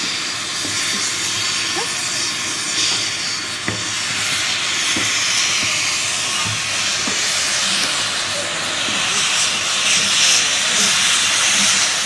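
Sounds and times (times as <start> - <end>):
steam locomotive venting steam: 0.0 - 12.0.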